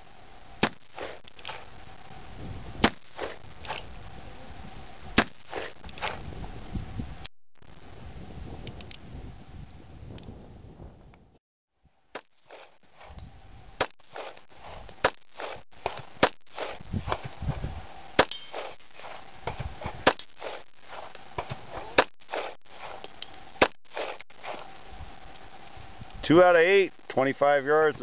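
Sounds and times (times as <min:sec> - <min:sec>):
wind noise: 0:00.4 - 0:28.0
pistol shots: 0:18.2 - 0:18.8.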